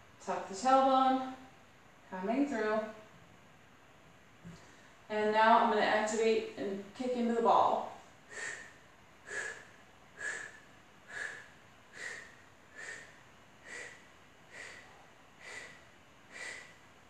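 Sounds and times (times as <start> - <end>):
sharp breaths through the nose: 8.3 - 16.8.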